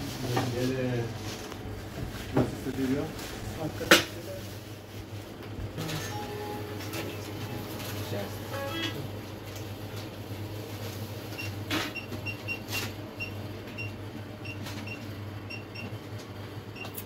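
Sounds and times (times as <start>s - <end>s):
low steady hum: 4.2s - 12.1s
keypad beeping: 6.0s - 9.1s.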